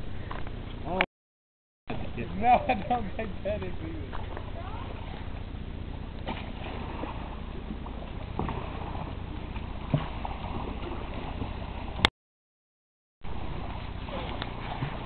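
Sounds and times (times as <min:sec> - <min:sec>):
kayak paddle strokes: 0:01.9 - 0:12.1, 0:13.3 - 0:15.0
light water splashing: 0:01.9 - 0:12.1, 0:13.3 - 0:15.0
steady low rumble: 0:01.9 - 0:12.1.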